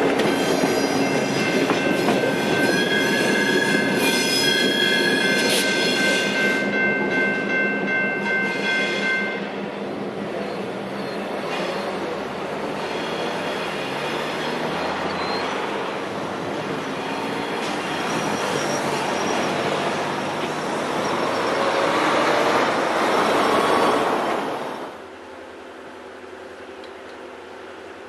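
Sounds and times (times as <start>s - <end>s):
freight train wheels on rails: 0.0s - 28.0s
cars and truck passing: 13.0s - 24.9s.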